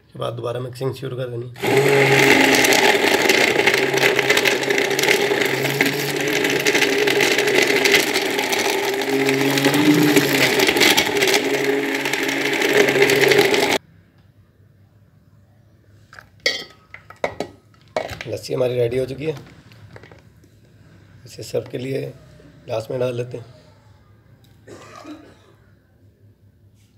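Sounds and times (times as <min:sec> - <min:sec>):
stick blender running: 0:01.6 - 0:13.8.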